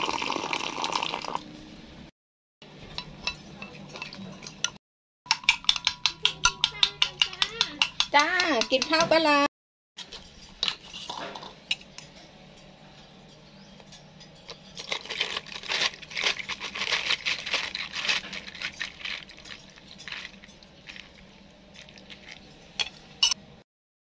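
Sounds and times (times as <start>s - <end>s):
ice crackling and clinking: 13.9s - 23.4s.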